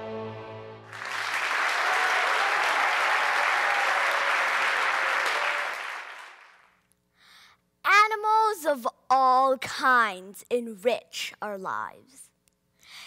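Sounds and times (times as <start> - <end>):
audience applauding: 0.9 - 6.8.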